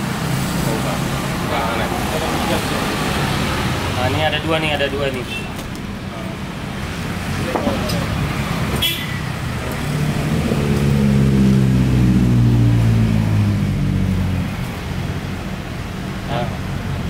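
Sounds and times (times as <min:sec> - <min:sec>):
vehicle engine passing by: 0:00.2 - 0:04.6, 0:06.9 - 0:15.4.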